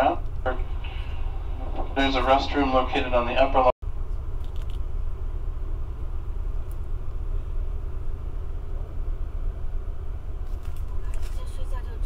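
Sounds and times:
train car rumble and hum: 0.0s - 12.0s.

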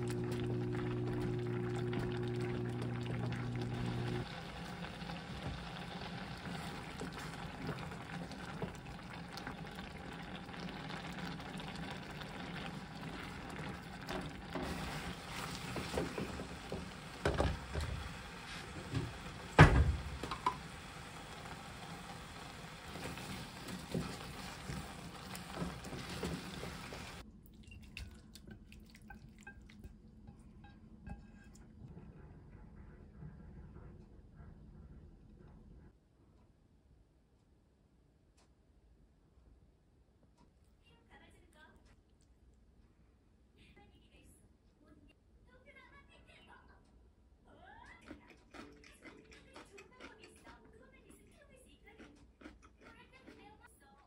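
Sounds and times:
spatula stirring and scraping: 0.0s - 19.3s, 21.7s - 27.2s, 28.0s - 32.9s
stew bubbling in a pot: 0.0s - 31.9s.

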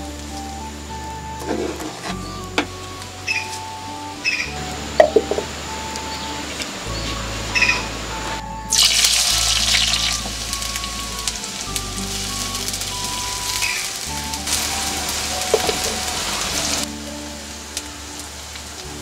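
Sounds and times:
onions sizzling in hot oil: 8.7s - 19.0s.

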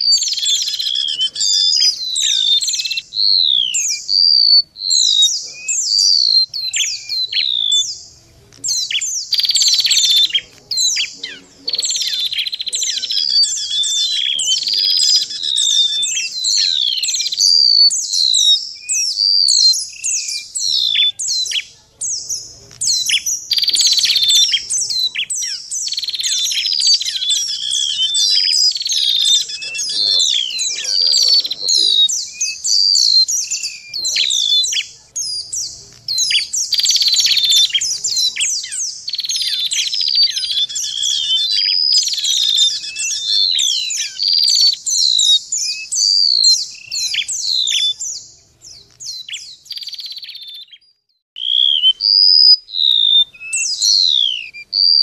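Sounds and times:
buzzy bird trills: 0.0s - 55.0s
chorus of bird chirps: 0.0s - 55.0s.

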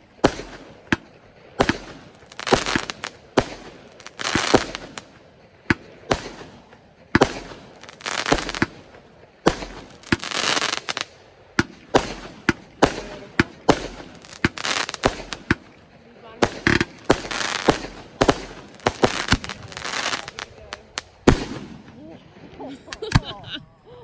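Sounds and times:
fireworks bangs: 0.0s - 23.4s
fireworks hiss: 1.6s - 15.7s, 16.4s - 22.0s.

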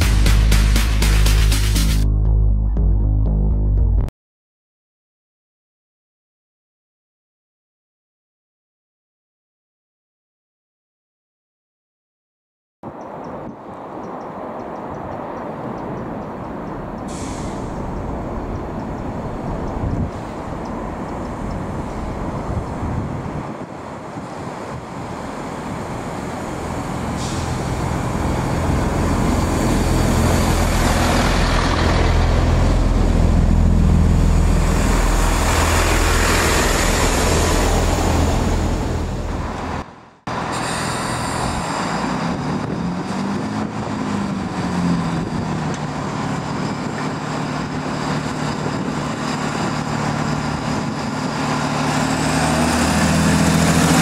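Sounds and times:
climbing engine whine: 12.8s - 54.0s
diesel train engines: 12.8s - 54.0s.

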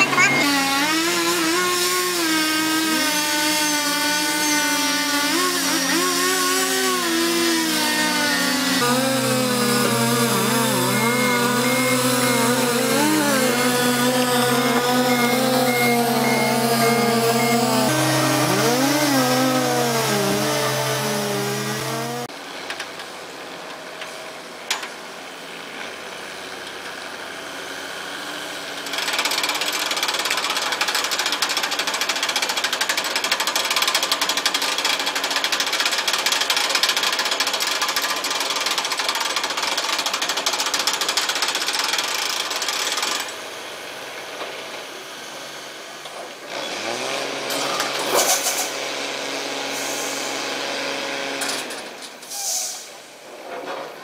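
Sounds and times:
diesel truck engine under load: 0.0s - 22.3s.

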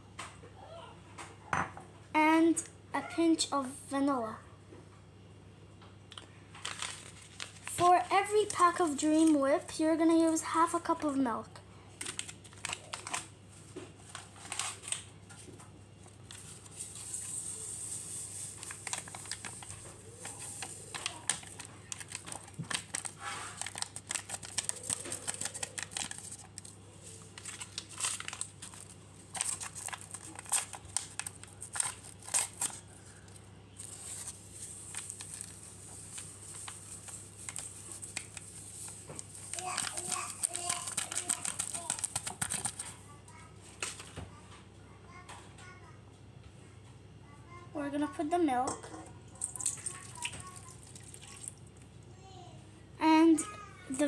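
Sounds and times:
packet crinkling and rustling: 6.1s - 9.5s, 12.0s - 43.0s, 49.4s - 51.6s.

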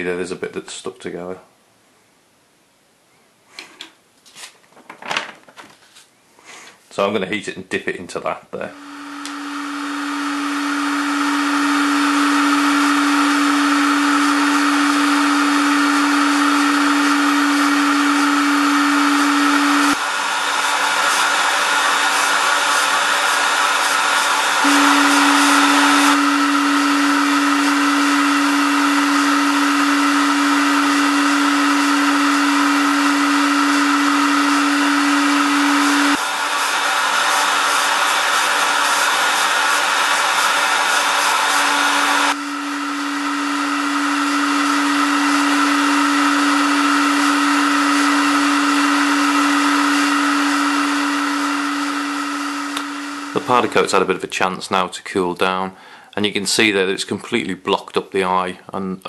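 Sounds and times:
heat gun motor hum: 8.7s - 54.0s
heat gun air rushing: 8.7s - 54.2s.

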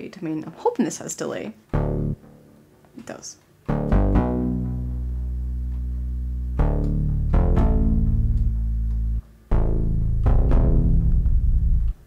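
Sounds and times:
deep synth bass with delay: 1.7s - 2.4s, 3.7s - 12.0s.

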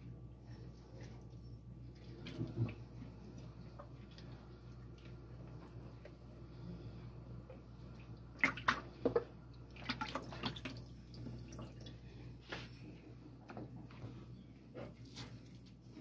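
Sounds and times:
water splashing in plastic basin: 8.3s - 11.9s.

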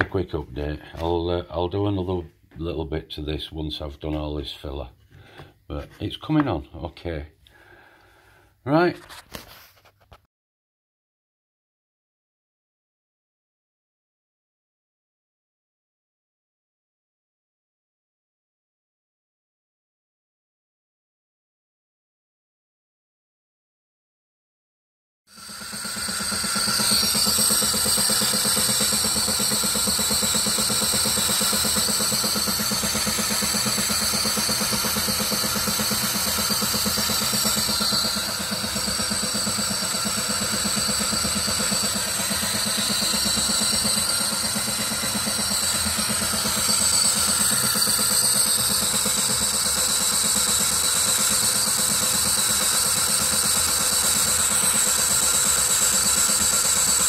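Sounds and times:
high whine: 25.3s - 48.9s
metal lathe running: 25.3s - 57.0s.

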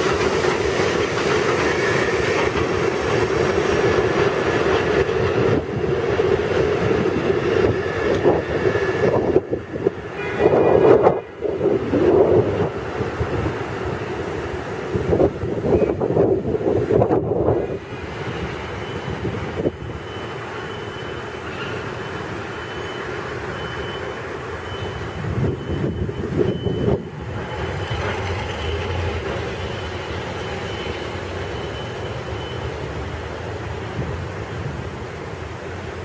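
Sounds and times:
wind gusting on microphone: 0.0s - 20.3s, 24.7s - 29.8s
train wheels rumbling on rail: 0.0s - 36.0s.

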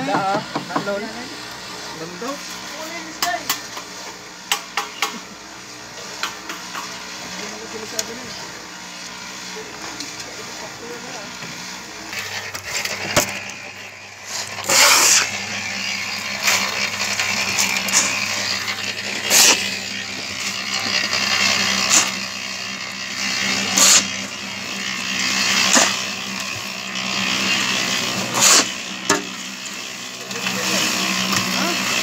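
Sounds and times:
cement mixer running: 0.0s - 32.0s
wet gravel churning in drum: 6.1s - 32.0s
shovel scraping and tossing gravel: 14.2s - 19.8s.

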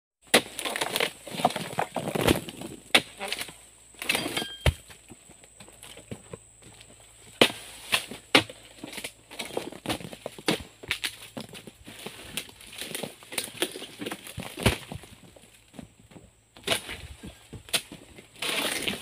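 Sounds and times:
chisel chopping palm stalks: 0.2s - 4.9s, 7.3s - 15.1s, 16.6s - 19.0s
palm fronds rustling: 0.3s - 4.4s, 7.1s - 15.8s.

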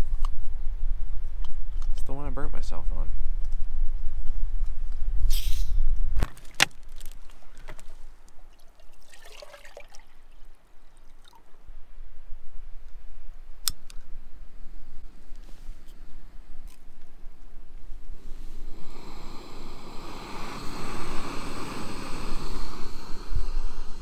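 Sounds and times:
water pouring and splashing: 6.3s - 11.5s.

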